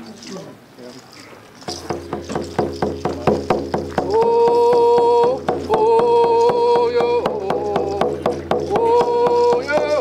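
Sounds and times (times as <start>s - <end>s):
hand drum beating: 1.7s - 10.0s
man singing long notes: 4.0s - 10.0s.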